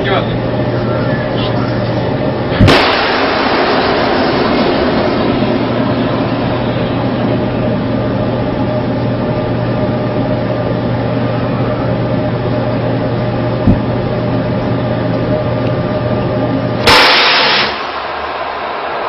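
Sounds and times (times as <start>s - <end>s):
mechanical hum with droning tones: 0.0s - 19.0s
cannon blast: 2.6s - 6.9s, 16.8s - 18.1s
low thump: 13.7s - 13.9s.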